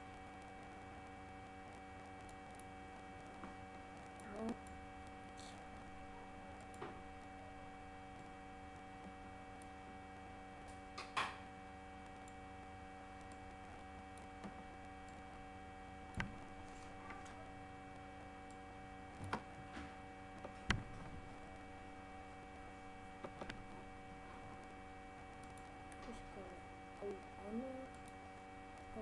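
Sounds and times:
steady electrical hum: 0.0 - 29.0.

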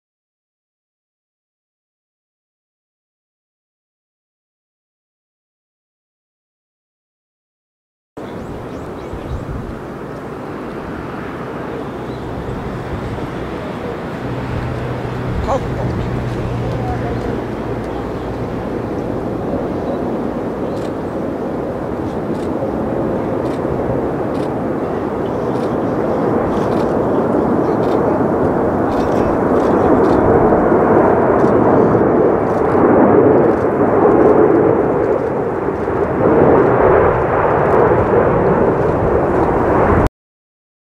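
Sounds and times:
jet engine rumble: 8.2 - 40.1.

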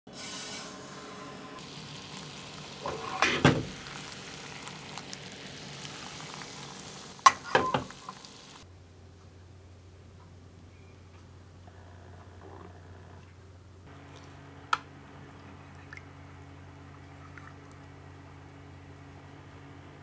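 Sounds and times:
caramel sizzling and bubbling: 0.1 - 8.7.

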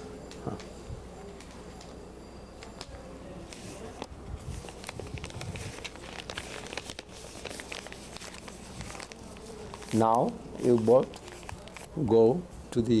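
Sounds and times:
paper rustling and crinkling: 3.5 - 12.0.

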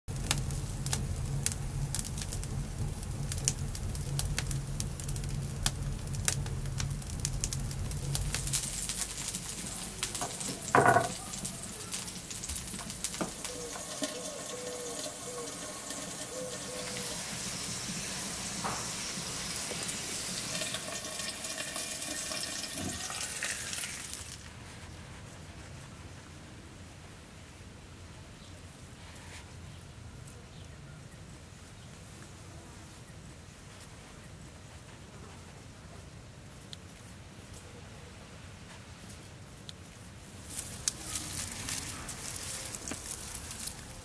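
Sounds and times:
low rumble of flames: 0.1 - 21.6, 40.0 - 44.0
wood fire crackling: 0.1 - 25.9, 38.5 - 44.0.

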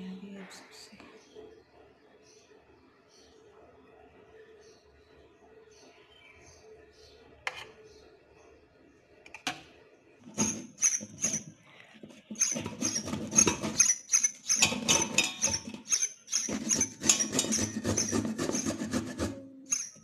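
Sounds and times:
carrot grating on steel grater: 10.3 - 20.0.

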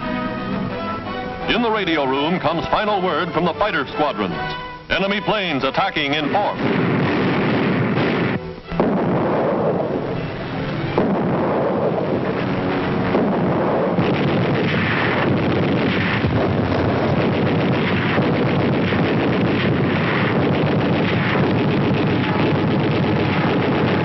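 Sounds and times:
sharp gun reports: 1.4 - 9.4
anti-aircraft gunfire clatter: 11.0 - 24.0.

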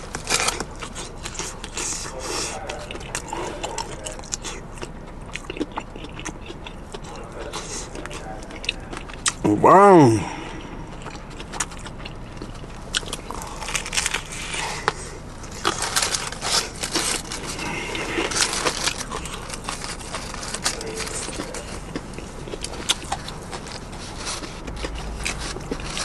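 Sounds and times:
crunching bites: 0.0 - 2.0, 10.6 - 26.0.

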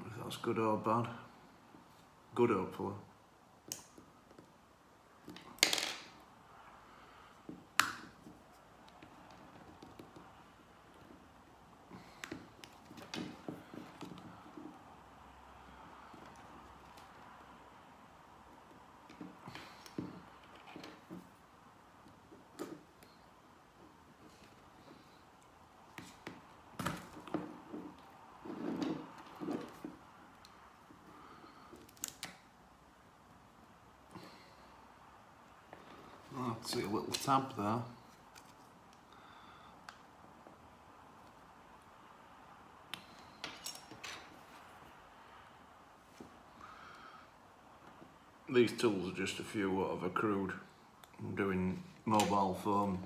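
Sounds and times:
muffled scraping and handling: 25.9 - 32.2.

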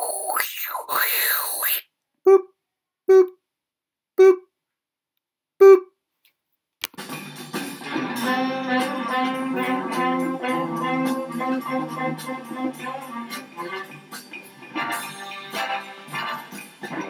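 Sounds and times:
intro music with plucked strings: 7.0 - 17.0.

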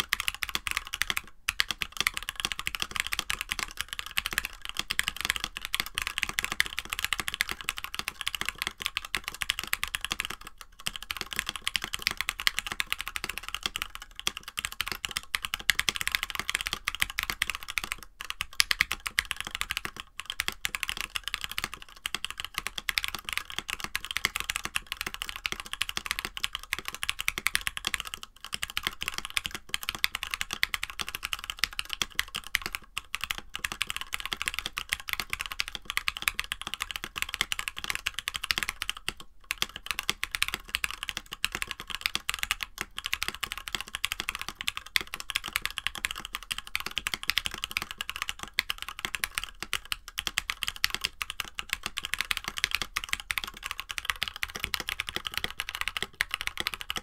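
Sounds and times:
fast mechanical keyboard typing: 0.0 - 57.0.

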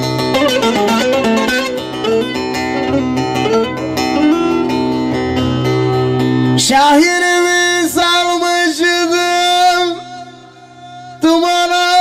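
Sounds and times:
plucked long-necked lute: 0.0 - 6.2
man singing: 6.6 - 12.0.

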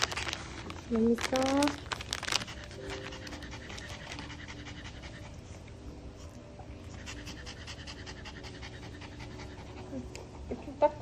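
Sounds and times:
dog panting rapidly: 2.2 - 5.8, 6.9 - 11.0.

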